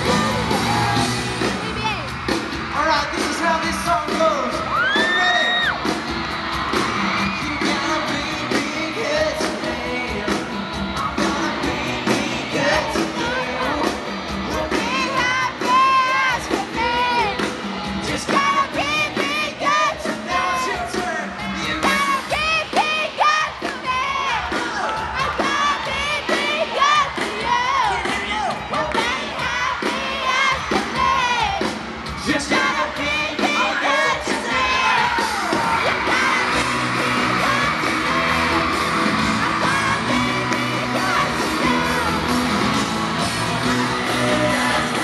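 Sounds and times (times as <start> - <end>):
fans screaming: 0.0 - 45.0
pop band playing live: 0.0 - 45.0
person singing: 7.3 - 17.4, 32.2 - 45.0.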